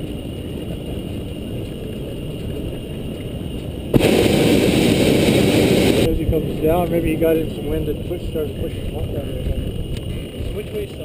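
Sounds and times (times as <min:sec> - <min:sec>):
low rumbling background: 0:00.0 - 0:10.4
propane burner roaring: 0:03.9 - 0:10.2.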